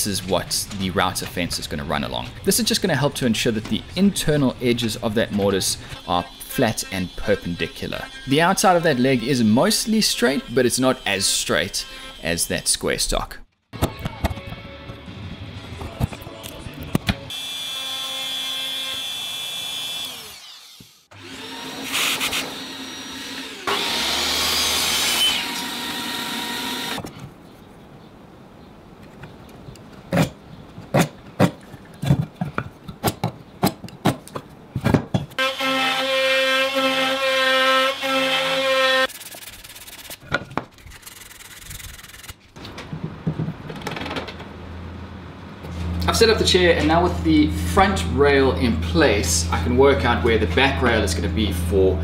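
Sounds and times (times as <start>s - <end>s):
power tools cutting wood: 5.1s - 12.8s, 17.3s - 27.1s, 35.4s - 39.2s.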